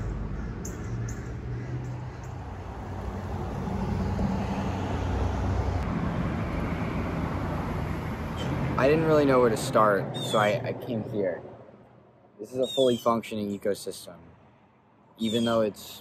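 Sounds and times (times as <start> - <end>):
passing cars rushing: 0.0 - 12.2.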